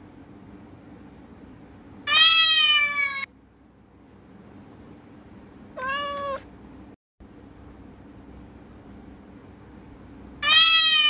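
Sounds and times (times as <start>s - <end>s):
faint background hum: 0.0s - 11.0s
cat meowing: 2.1s - 3.3s, 5.8s - 6.5s, 10.4s - 11.0s.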